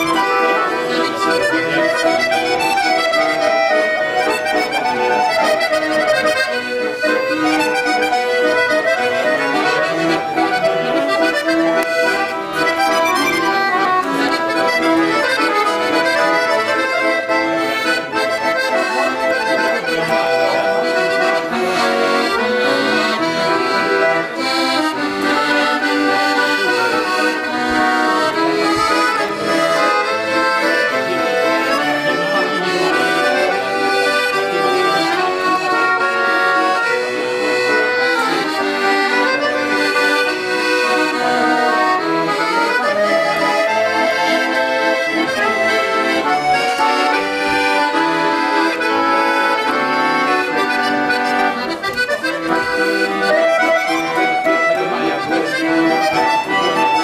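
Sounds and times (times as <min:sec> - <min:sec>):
accordions playing a tune: 0:00.0 - 0:57.0.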